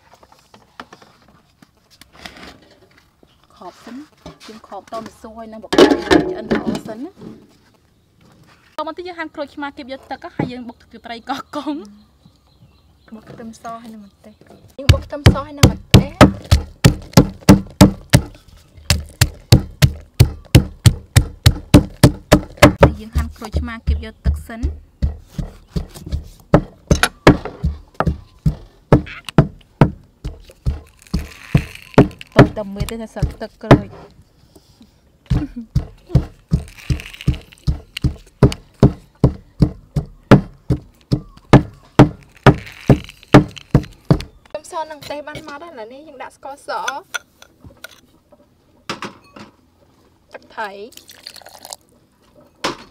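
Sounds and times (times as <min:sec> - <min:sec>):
pestle pounding in mortar: 0:14.8 - 0:34.0, 0:35.3 - 0:44.4.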